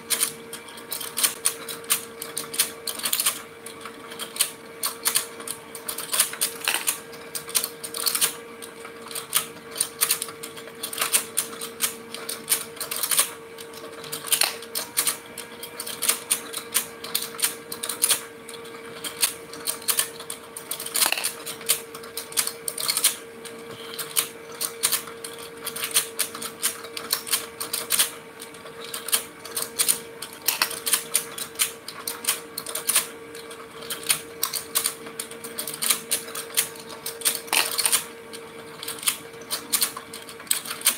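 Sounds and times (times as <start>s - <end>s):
toy motor hum: 0.0s - 8.4s, 9.0s - 28.1s
rapid plastic clicking: 0.0s - 40.9s.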